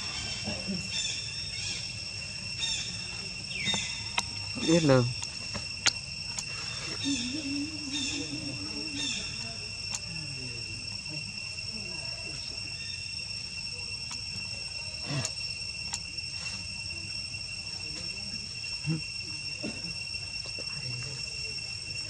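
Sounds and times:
wavering call: 0.0s - 16.7s
insects droning: 0.0s - 22.0s.

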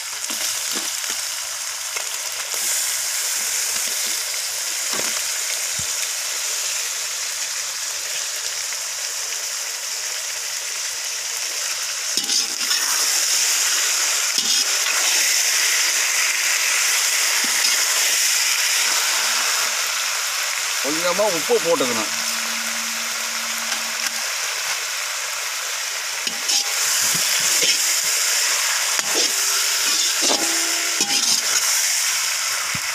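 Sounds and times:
vegetables sizzling in hot oil: 0.0s - 32.9s
spatula scraping and knocking pan: 26.3s - 28.0s, 29.0s - 31.7s.

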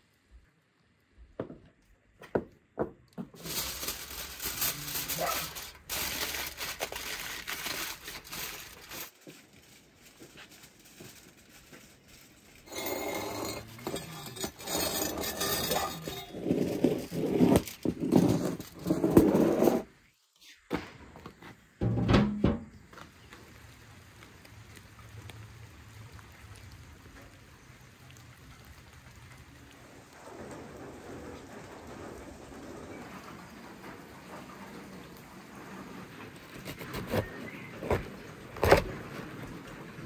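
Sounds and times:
metal buckets scraping and clinking: 3.3s - 9.2s, 12.5s - 19.9s, 21.8s - 22.8s
foil crinkling: 3.3s - 19.5s, 36.4s - 39.7s.

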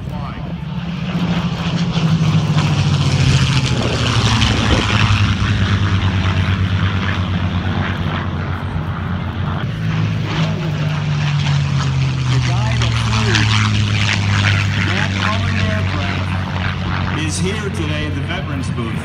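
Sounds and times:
piston aircraft engines droning: 0.0s - 19.0s.

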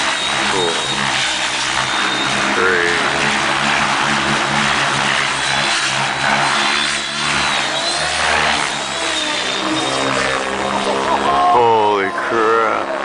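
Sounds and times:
model helicopter rotor hum and whine: 0.0s - 13.0s.

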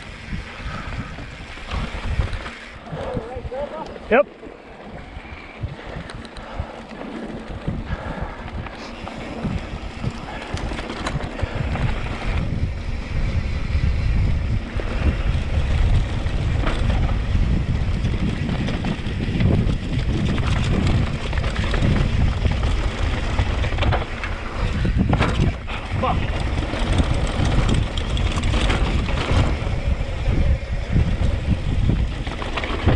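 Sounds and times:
bike rattling over bumps: 0.0s - 32.9s
wind buffeting microphone: 0.0s - 32.9s
tyres rolling over dirt: 0.6s - 32.9s.

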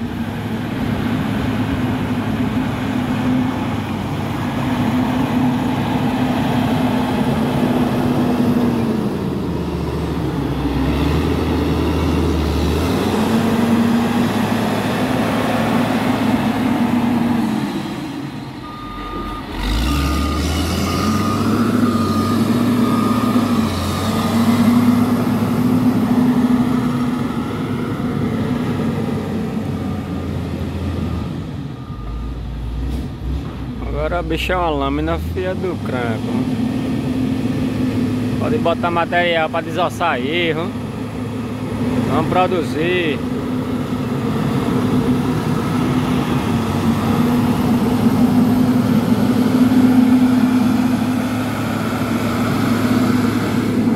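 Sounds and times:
grader diesel engine under load: 0.0s - 53.9s
reversing alarm beeping: 18.6s - 25.3s, 29.8s - 32.8s.

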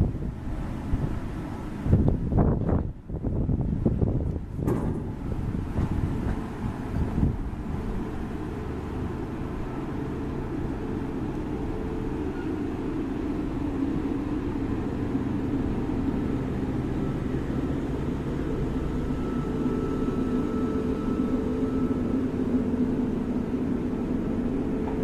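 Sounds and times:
electric train humming: 0.0s - 25.0s
faint high whine: 7.6s - 25.0s.

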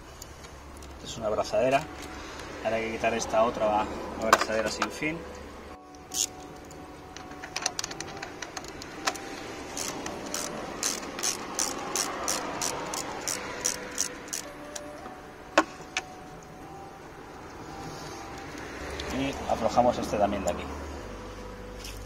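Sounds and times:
ratchet tool clicking: 6.1s - 6.4s, 7.5s - 14.9s.

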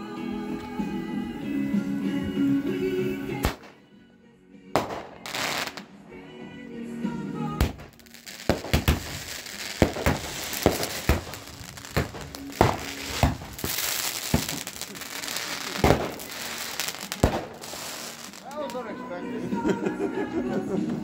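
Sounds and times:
fireworks crackling: 3.3s - 3.8s, 4.8s - 19.1s
fireworks bangs and pops: 3.4s - 3.8s, 4.8s - 5.9s, 7.6s - 18.8s.

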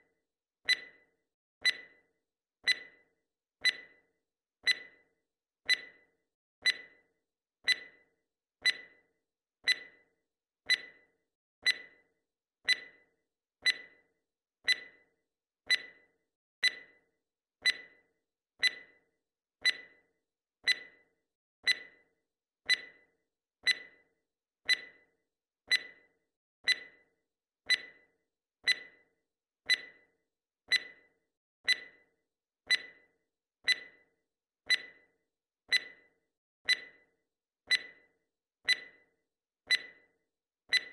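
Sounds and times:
clock ticking: 34.7s - 35.0s.

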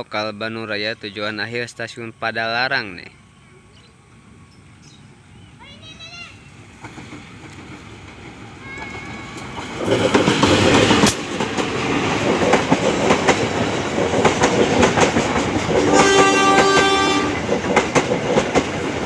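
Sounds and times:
diesel locomotive passing: 0.0s - 19.0s
train wheels clicking over rail joints: 6.6s - 19.0s
train horn: 15.8s - 17.4s.

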